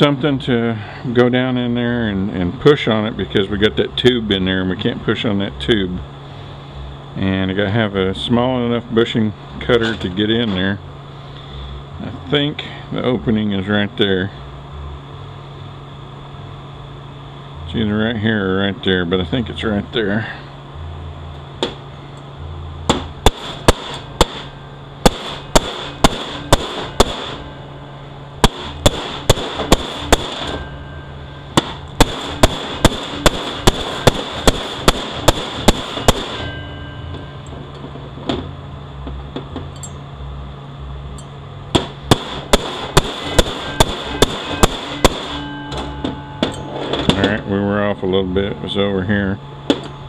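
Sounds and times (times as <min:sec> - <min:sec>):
hammer striking metal: 0:22.8 - 0:27.7, 0:28.4 - 0:38.5, 0:41.2 - 0:48.9.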